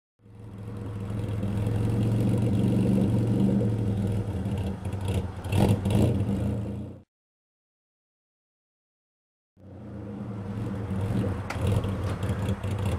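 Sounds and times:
car engine running: 0:00.2 - 0:06.9, 0:09.6 - 0:12.9.

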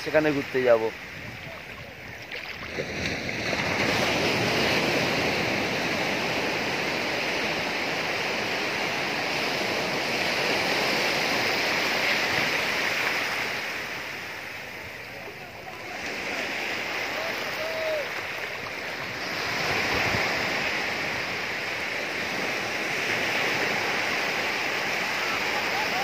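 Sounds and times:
sea surf breaking: 0:00.0 - 0:26.0.

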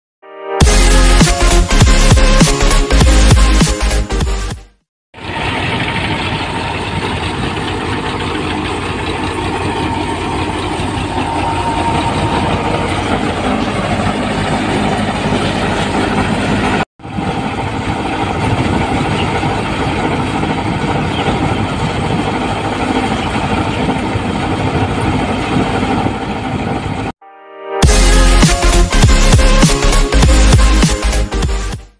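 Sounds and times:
thresher and tractor engine running: 0:05.2 - 0:27.1.

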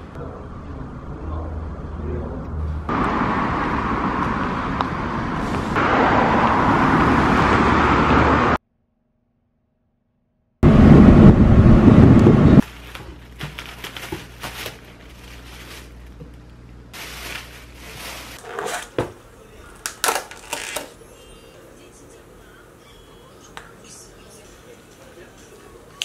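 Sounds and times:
vehicle cabin rumble: 0:10.6 - 0:18.4
plastic bag rustling: 0:12.6 - 0:16.3, 0:17.0 - 0:19.2
plastic containers clicking: 0:19.8 - 0:20.9.

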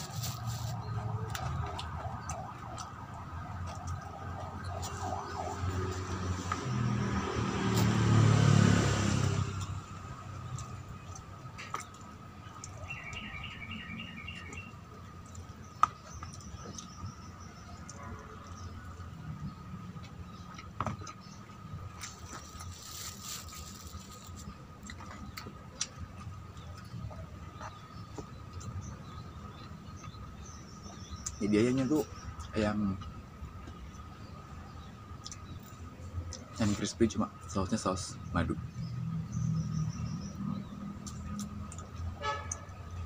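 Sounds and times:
motor vehicle passing: 0:00.0 - 0:11.6, 0:36.5 - 0:42.1
bird-like chirps: 0:10.4 - 0:18.9, 0:19.5 - 0:35.8.

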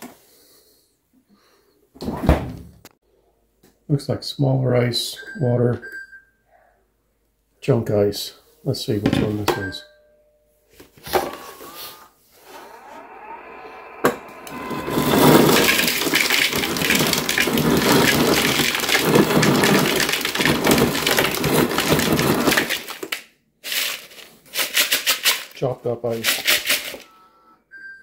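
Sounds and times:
short motor hum: 0:11.4 - 0:17.3
crushed ice crunching into bowl: 0:14.5 - 0:27.0.

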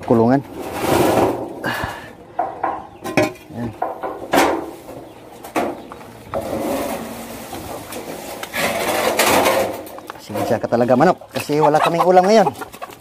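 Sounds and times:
rustling of netting: 0:06.4 - 0:10.0.

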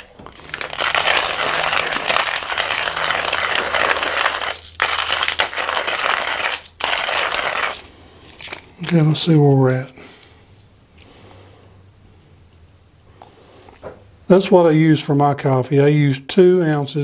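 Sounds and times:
hand coffee grinder crunching beans: 0:00.0 - 0:08.7.

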